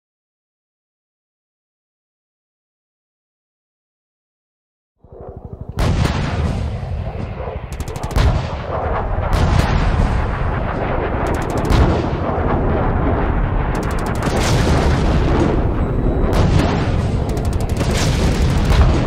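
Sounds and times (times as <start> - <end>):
heavy rumble: 5.0 - 19.0
machine-gun fire: 5.8 - 6.8, 7.7 - 10.4, 11.2 - 12.6, 13.7 - 19.0
quick pulses: 11.3 - 11.9, 13.8 - 14.9, 17.2 - 18.8.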